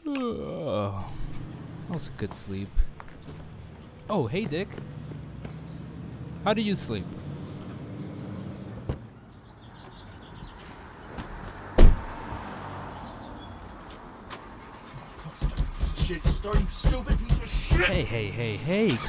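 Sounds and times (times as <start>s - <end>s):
car door shutting thud: 8.8s - 9.1s, 11.8s - 12.1s
knock on car door: 15.5s - 18.1s.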